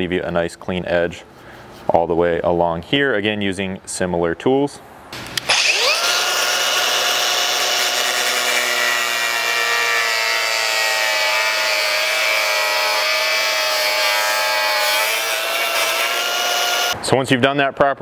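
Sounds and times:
angle grinder whining: 5.2s - 17.0s.

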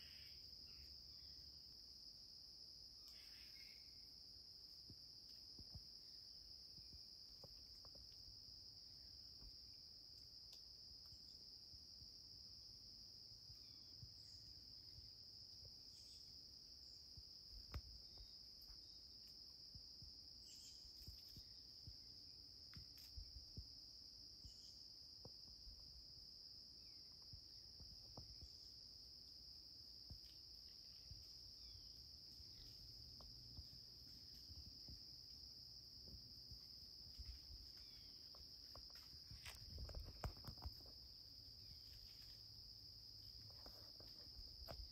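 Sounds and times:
high-pitched insect chorus trilling: 0.0s - 44.9s.

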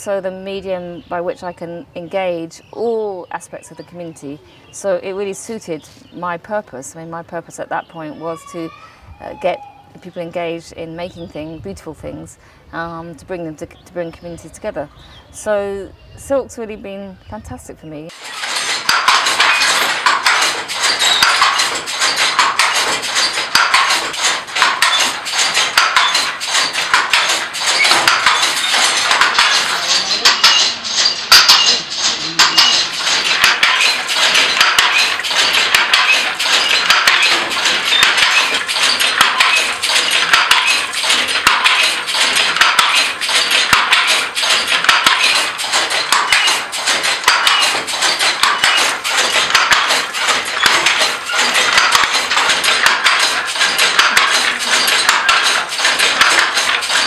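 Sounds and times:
handloom clattering: 18.1s - 57.0s.

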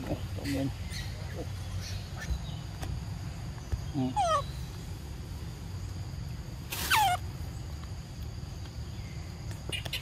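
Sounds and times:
macaque calling: 4.0s - 4.7s, 6.8s - 7.3s.

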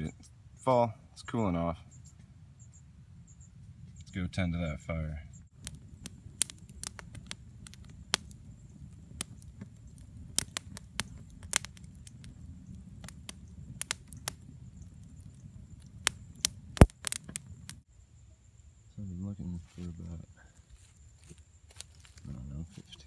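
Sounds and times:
low fire rumble: 0.0s - 17.9s
campfire crackling and popping: 5.5s - 17.9s, 21.2s - 23.0s.

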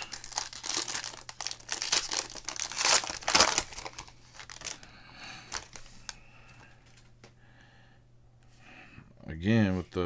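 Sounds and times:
foil wrapper crinkling: 0.0s - 6.2s
cards rustling: 0.0s - 7.1s.

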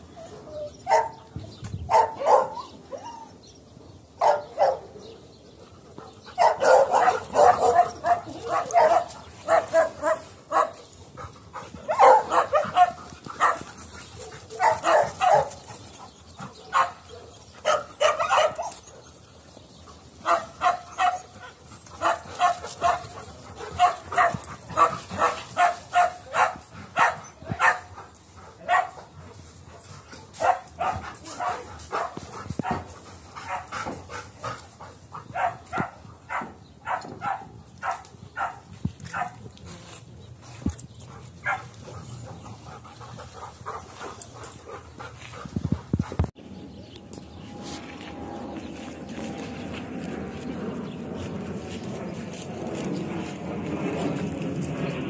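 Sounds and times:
dogs barking: 0.9s - 1.3s, 1.9s - 3.2s, 4.2s - 5.1s, 6.2s - 19.1s, 20.2s - 39.4s, 41.1s - 45.5s.

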